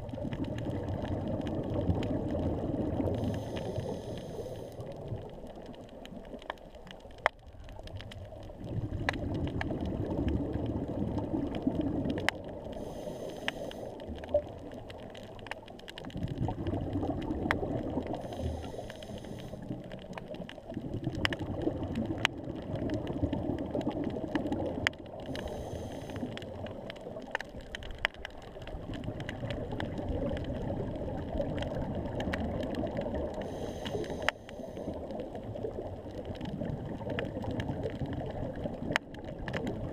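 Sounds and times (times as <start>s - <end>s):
bubbling on exhale: 0.0s - 6.4s, 7.8s - 39.9s
regulator hiss on inhale: 3.0s - 5.0s, 12.7s - 14.2s, 18.1s - 20.0s, 25.2s - 26.6s, 33.4s - 35.2s.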